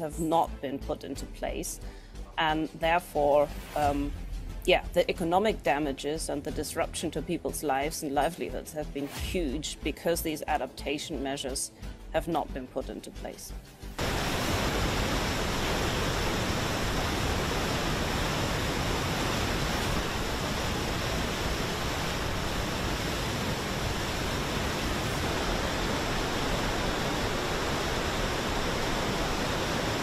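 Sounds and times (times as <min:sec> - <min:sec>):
river rushing over a weir: 0:14.0 - 0:30.0.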